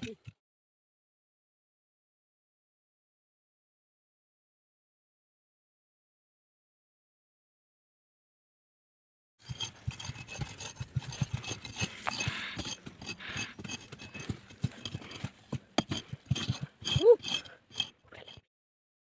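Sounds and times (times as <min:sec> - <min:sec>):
hatchet striking earth: 0:09.4 - 0:18.4
loose soil scraping: 0:09.4 - 0:18.5.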